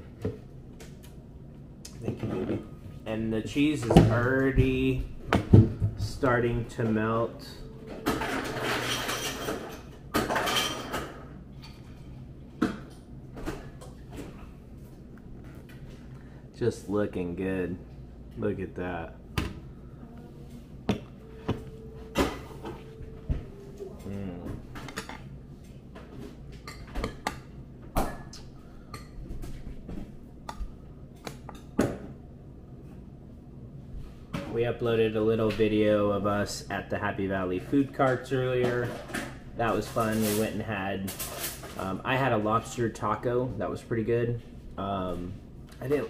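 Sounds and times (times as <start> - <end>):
dishes and utensils clinking: 7.4 - 12.0
tableware clattering and scraping: 7.4 - 12.1, 24.7 - 25.3, 41.1 - 41.9.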